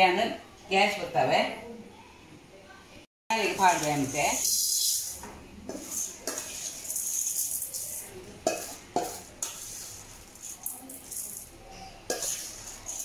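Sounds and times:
rice grains pattering into pan: 0:03.4 - 0:13.0
spoon scraping steel bowl: 0:03.4 - 0:13.0
spoon clinking on metal rim: 0:05.8 - 0:13.0.

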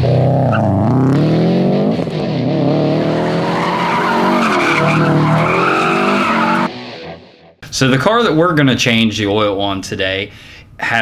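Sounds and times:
car engine revving: 0:00.0 - 0:07.2
tires squealing: 0:02.7 - 0:06.7.

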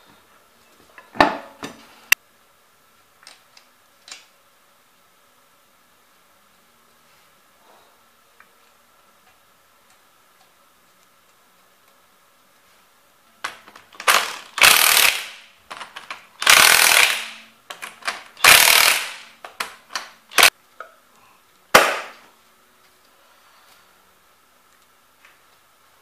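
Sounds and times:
impact wrench hammering: 0:14.0 - 0:15.4, 0:16.4 - 0:19.4, 0:20.3 - 0:20.5, 0:21.8 - 0:22.2
sharp knock: 0:21.8 - 0:22.2.

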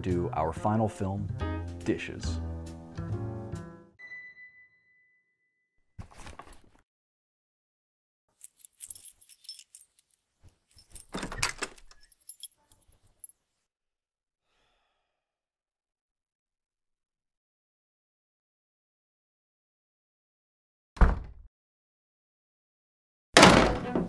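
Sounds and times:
keys jangling: 0:08.3 - 0:13.4.

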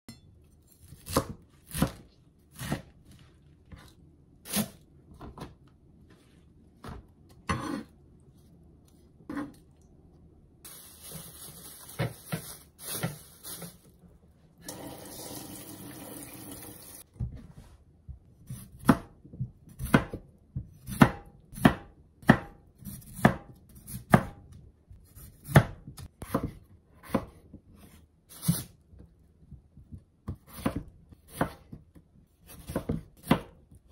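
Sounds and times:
knife chopping on wooden board: 0:00.9 - 0:02.9, 0:18.5 - 0:24.4, 0:25.1 - 0:27.5, 0:30.2 - 0:33.6
plastic bag crinkling: 0:10.7 - 0:14.1.

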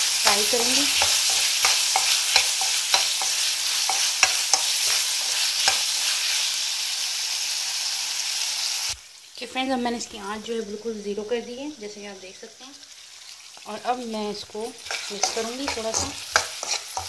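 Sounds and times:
spatula stirring and scraping pan: 0:00.0 - 0:06.5, 0:13.5 - 0:17.0
vegetables sizzling in oil: 0:00.0 - 0:17.0.

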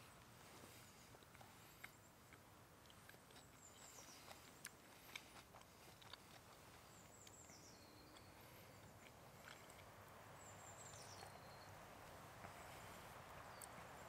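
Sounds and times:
faint steady hiss: 0:00.0 - 0:14.0
faint high bird chirp: 0:03.3 - 0:04.8, 0:06.7 - 0:14.0.

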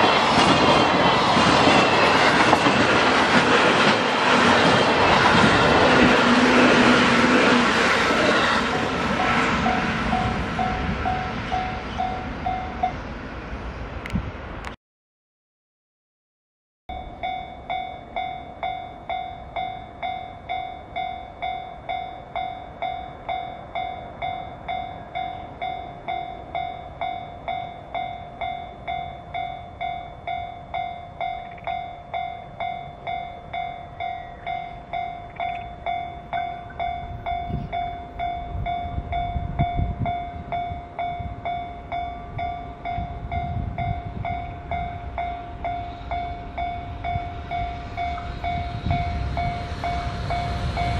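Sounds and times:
level crossing warning bell: 0:08.7 - 0:13.0, 0:16.9 - 0:50.9.

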